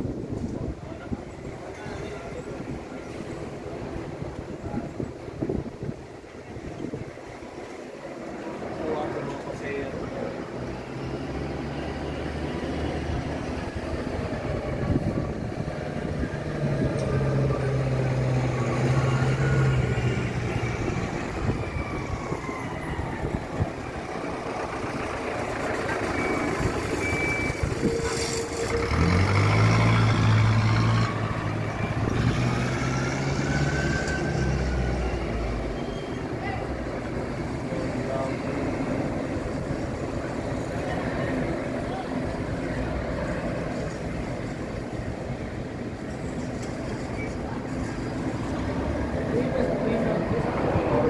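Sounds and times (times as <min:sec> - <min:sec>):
jet engines of landing airliner: 0:37.0 - 0:51.0.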